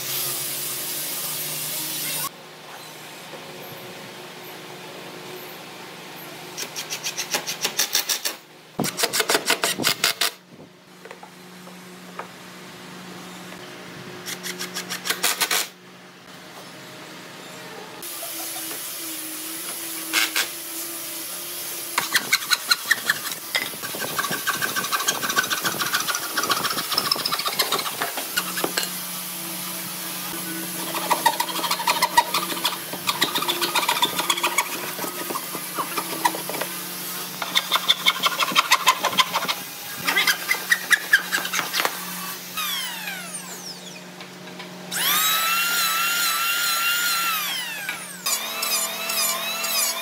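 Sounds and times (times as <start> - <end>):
saw cutting wood planks: 6.6 - 10.4, 18.0 - 29.0, 29.7 - 44.0, 44.9 - 50.0.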